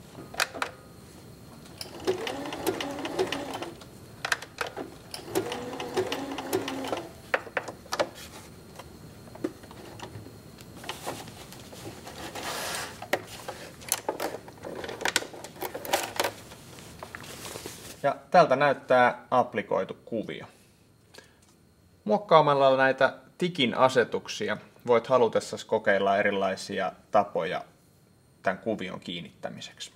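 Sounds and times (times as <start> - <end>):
sewing machine stitching: 1.8 - 3.8, 4.7 - 7.2.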